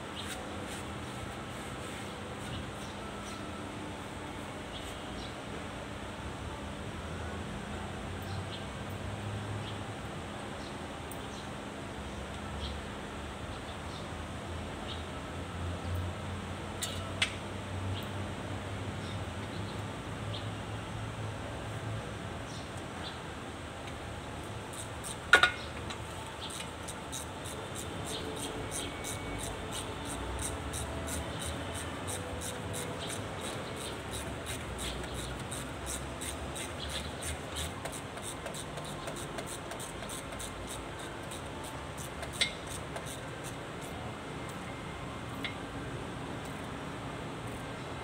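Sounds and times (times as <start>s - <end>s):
faint ticking of hand tools: 24.7s - 43.9s.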